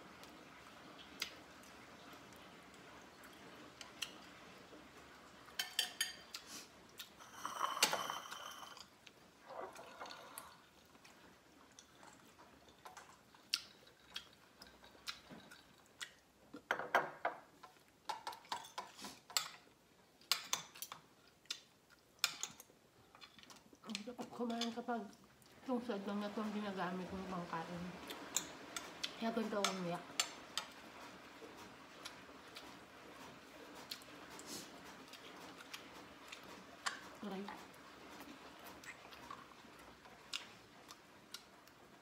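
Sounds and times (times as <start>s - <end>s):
fork clinking on plates: 5.6s - 6.4s
wet chewing: 9.4s - 16.6s, 20.2s - 24.2s, 28.0s - 41.8s.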